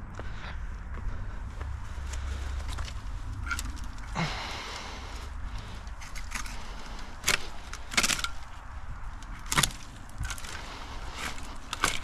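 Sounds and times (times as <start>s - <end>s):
twigs crackling: 0.1s - 12.0s
pruning shears snipping branches: 5.5s - 12.0s.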